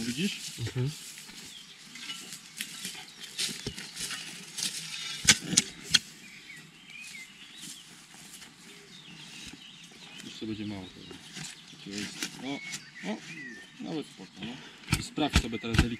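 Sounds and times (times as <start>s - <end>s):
soil scooped by hand: 1.2s - 6.1s
shovel chopping into ground: 3.4s - 6.1s, 14.9s - 15.9s
shovel scraping sandy soil: 3.5s - 6.1s.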